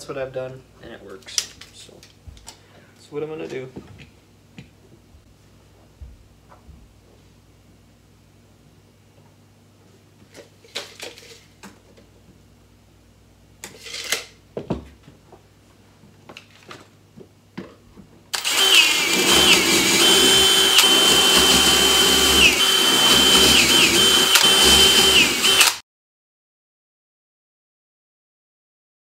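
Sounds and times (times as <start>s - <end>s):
cordless drill whining: 18.4s - 25.8s.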